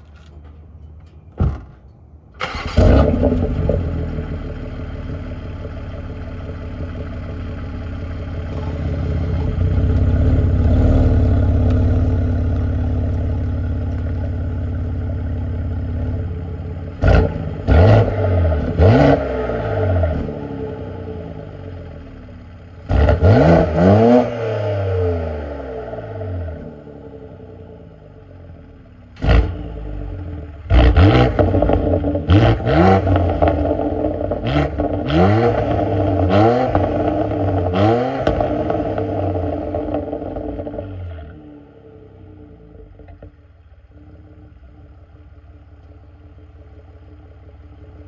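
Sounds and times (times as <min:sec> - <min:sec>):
car engine starting and running: 0:00.0 - 0:48.0
car engine revving: 0:08.4 - 0:21.9, 0:22.8 - 0:27.5, 0:29.2 - 0:43.1.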